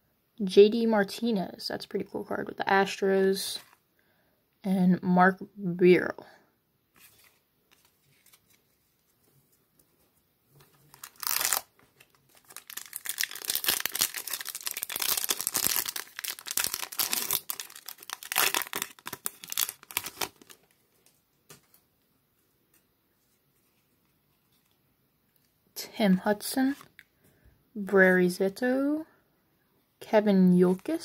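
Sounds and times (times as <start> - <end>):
foil wrapper tearing and crinkling: 10.9 - 20.7.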